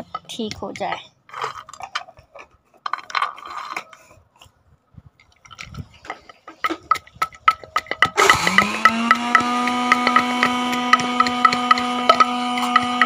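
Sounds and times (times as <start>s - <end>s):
pestle crushing nuts in mortar: 5.4s - 13.0s.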